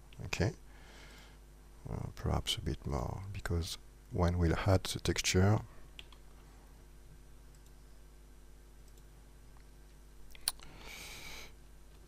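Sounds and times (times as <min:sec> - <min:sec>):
faint low hum: 0:00.0 - 0:12.0
computer mouse clicks: 0:06.0 - 0:06.2, 0:07.5 - 0:07.8, 0:08.8 - 0:09.1.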